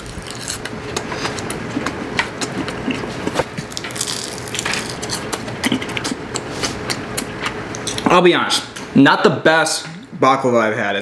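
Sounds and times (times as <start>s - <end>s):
crunching and chewing pastry: 0.0s - 8.0s.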